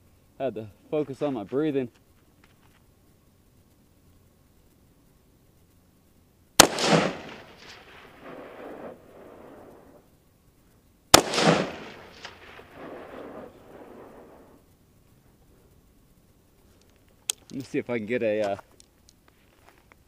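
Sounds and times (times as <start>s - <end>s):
rifle shots: 6.6s - 10.0s, 11.1s - 14.5s
rolling echo: 6.6s - 10.1s, 11.1s - 14.7s.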